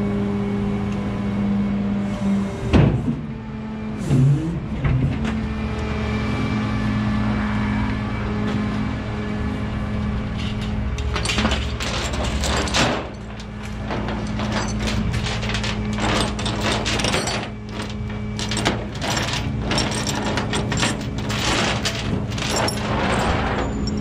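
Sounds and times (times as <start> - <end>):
truck engine humming: 7.1 - 24.0
chain clanking on metal bed: 11.0 - 24.0.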